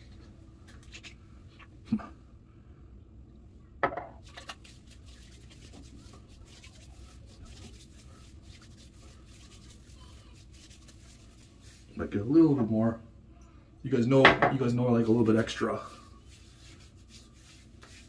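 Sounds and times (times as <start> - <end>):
hands rubbing and patting skin: 4.2 - 12.3, 14.6 - 18.0.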